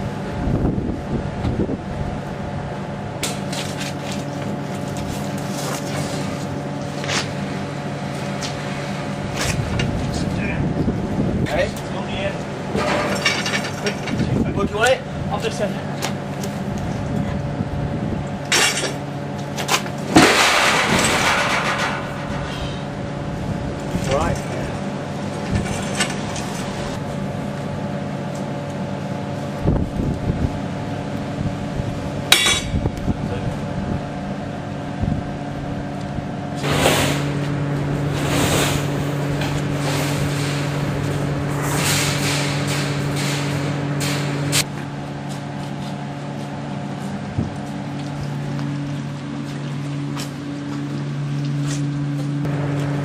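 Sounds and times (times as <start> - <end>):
steady low hum: 0.0 - 53.0
rattling and scraping: 12.7 - 14.8, 18.5 - 23.1, 23.8 - 27.0, 36.6 - 44.7
loud crash: 20.1 - 22.6.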